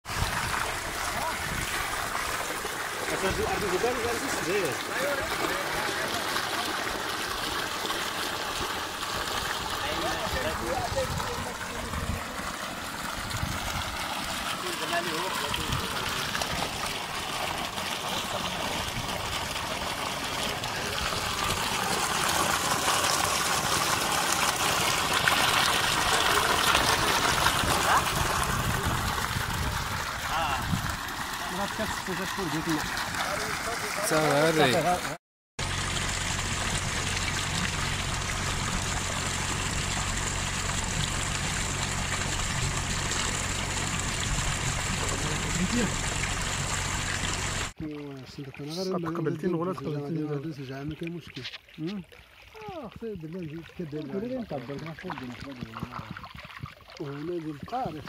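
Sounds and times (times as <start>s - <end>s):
water gushing and splashing into pool: 0.0s - 58.0s
low steady hum: 35.6s - 47.7s.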